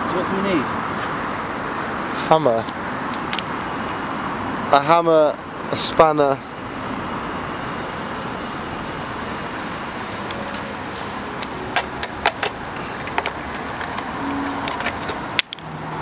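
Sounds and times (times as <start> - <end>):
steady background noise: 0.0 - 16.0
metal tools clinking: 11.7 - 15.8.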